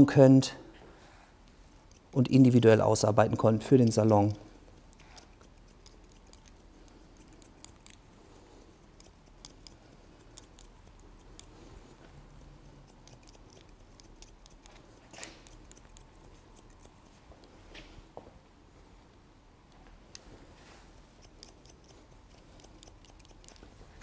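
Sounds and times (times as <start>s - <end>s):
scissors snipping hair: 1.7s - 2.5s, 3.8s - 17.2s, 20.9s - 24.0s.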